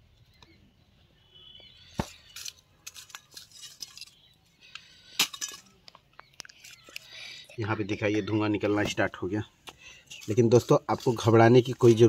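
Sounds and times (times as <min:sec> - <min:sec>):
metal pliers clinking on steel: 0:02.1 - 0:06.0.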